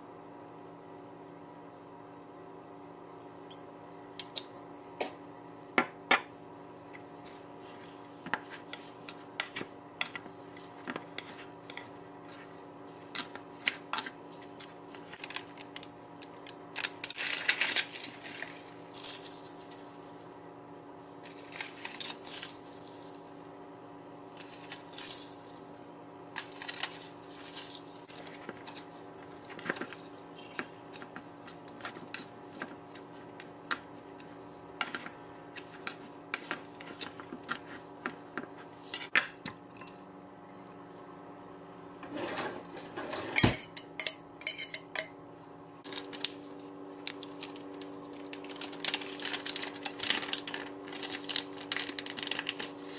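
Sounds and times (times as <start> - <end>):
utensils clinking against a pot: 42.9 - 45.1.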